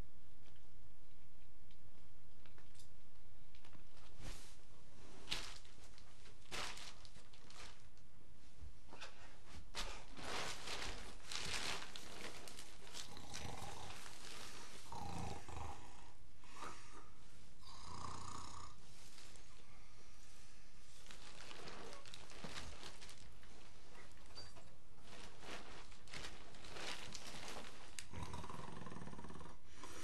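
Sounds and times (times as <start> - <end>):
woman snoring: 13.0 - 18.8, 28.1 - 30.0.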